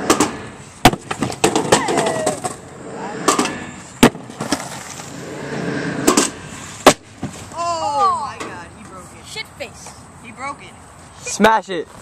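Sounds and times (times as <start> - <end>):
skateboard clattering on ground: 0.0 - 5.1
skateboard wheels rolling on concrete: 0.0 - 12.0.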